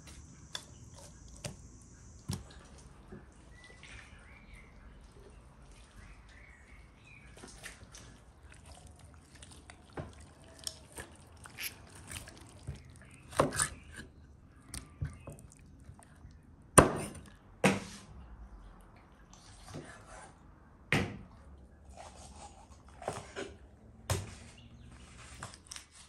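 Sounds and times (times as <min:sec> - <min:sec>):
wet squishing of raw chicken: 0:00.1 - 0:17.6.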